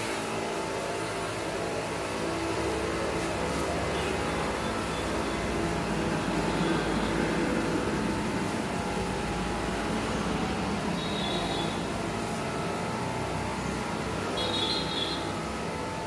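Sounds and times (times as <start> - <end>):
motorized sprayer running: 0.0 - 16.0.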